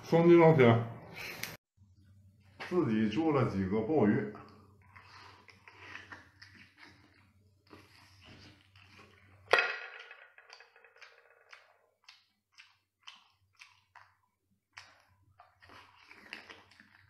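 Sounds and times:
chewing smacks: 4.4s - 9.4s, 11.5s - 17.0s
person slurping and sucking: 4.6s - 9.4s.

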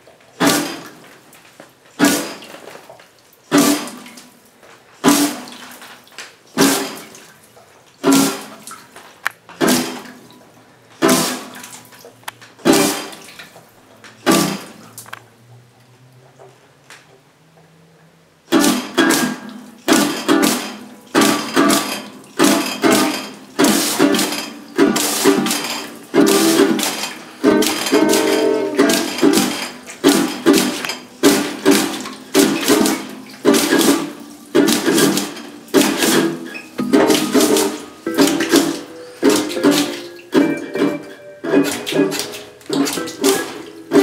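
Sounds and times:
water running from tap: 9.6s - 13.7s, 19.9s - 40.4s
classical guitar playing: 20.3s - 44.0s.

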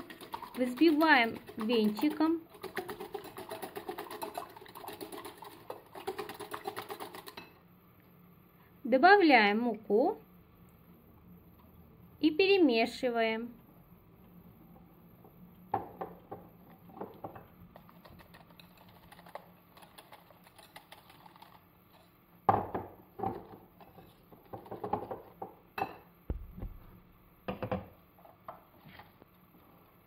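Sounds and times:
whisk ticking against glass bowl: 0.0s - 7.5s
saucepan and sieve clattering: 0.0s - 7.6s.

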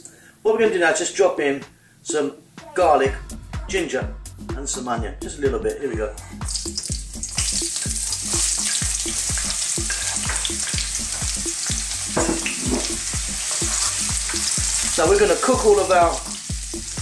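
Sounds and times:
background music with low beat: 1.5s - 17.0s
ginger and onion sizzling in oil: 6.4s - 17.0s.

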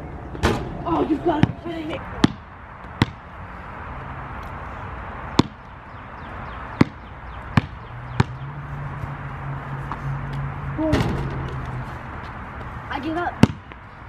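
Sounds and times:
basketball bouncing on driveway: 2.2s - 3.2s, 5.4s - 5.7s, 6.7s - 8.5s, 13.4s - 13.8s.

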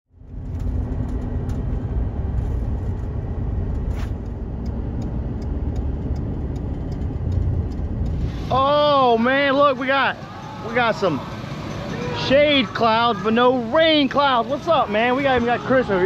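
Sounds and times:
vehicle rumble from inside cabin: 0.1s - 16.0s
faint ticks: 4.2s - 8.2s.

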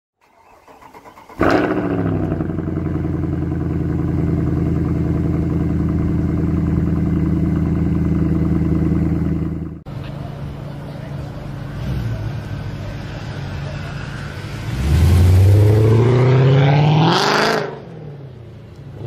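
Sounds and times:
engine cranking and idling: 0.2s - 9.9s.

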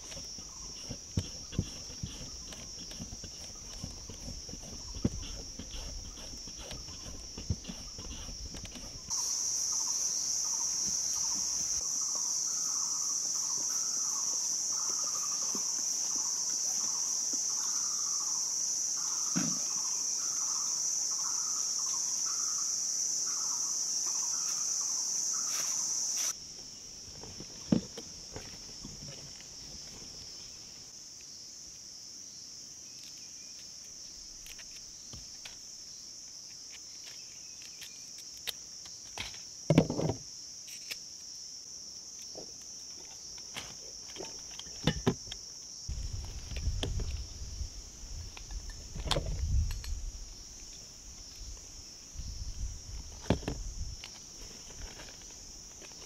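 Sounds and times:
insects shrilling: 0.0s - 26.4s
rising and falling insect call: 0.0s - 31.5s.

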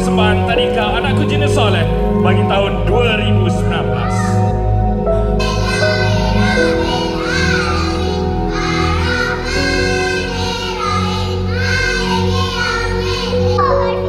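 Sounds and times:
musical accompaniment: 0.0s - 14.0s
children singing into microphones: 3.7s - 4.5s, 5.2s - 14.0s.

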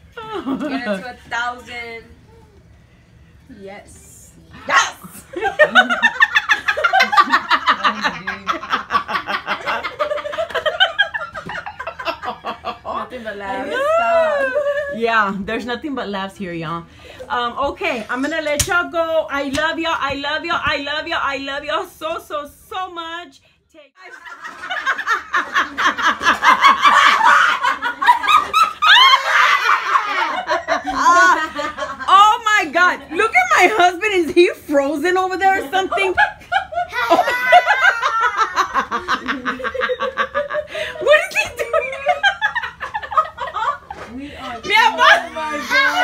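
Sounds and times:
women laughing: 0.2s - 1.1s, 5.2s - 15.1s, 24.0s - 32.4s, 35.4s - 46.0s.

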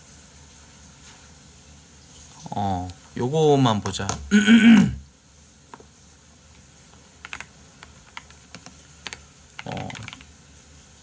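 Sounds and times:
computer keyboard keys clicking: 7.2s - 10.3s.

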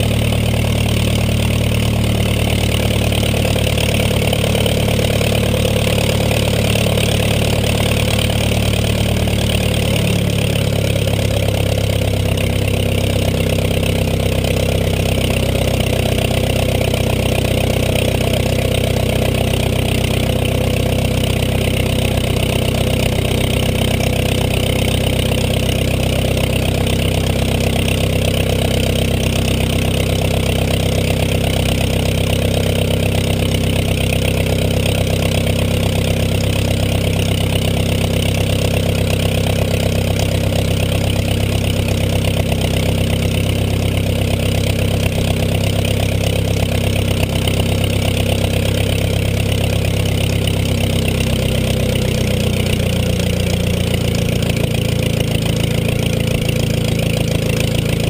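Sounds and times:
aircraft engine idling: 0.0s - 58.0s.

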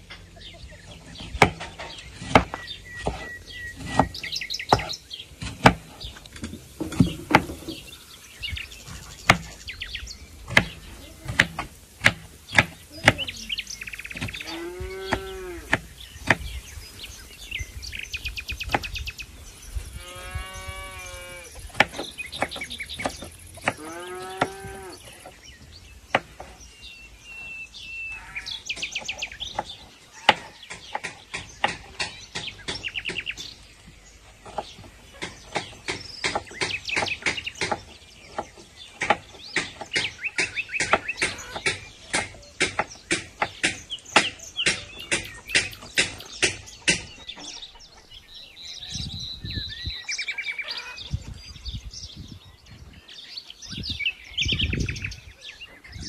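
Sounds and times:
birds chirping: 0.0s - 56.0s
cow mooing: 14.4s - 15.7s, 20.0s - 21.5s, 23.8s - 25.0s.

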